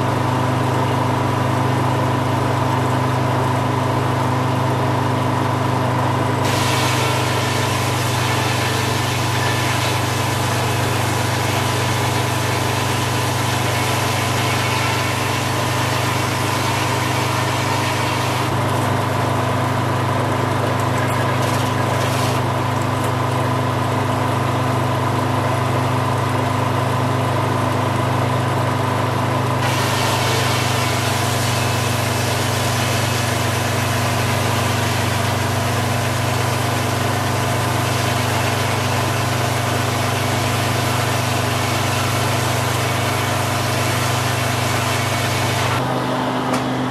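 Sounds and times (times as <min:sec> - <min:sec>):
diesel engine running: 0:00.0 - 0:46.9
circular saw cutting log: 0:06.4 - 0:25.8, 0:29.6 - 0:46.9.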